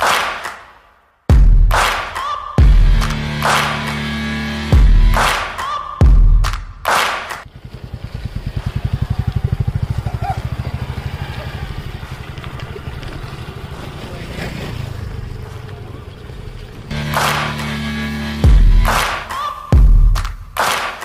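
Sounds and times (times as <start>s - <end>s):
engine low throb: 7.5s - 13.7s, 16.6s - 19.1s.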